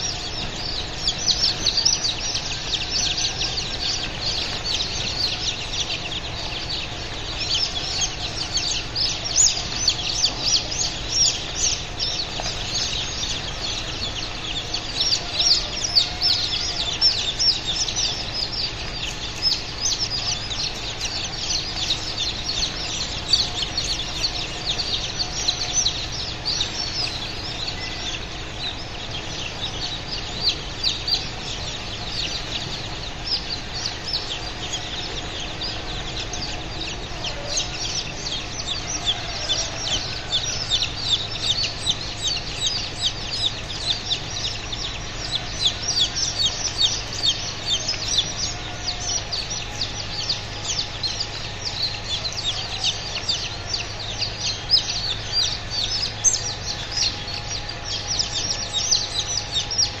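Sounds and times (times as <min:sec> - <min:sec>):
chicks peeping: 0:00.0 - 1:00.0.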